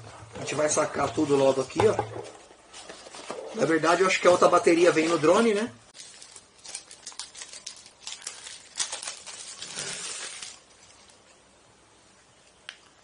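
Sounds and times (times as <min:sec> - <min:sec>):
plastic packaging crinkling: 0:02.7 - 0:11.3.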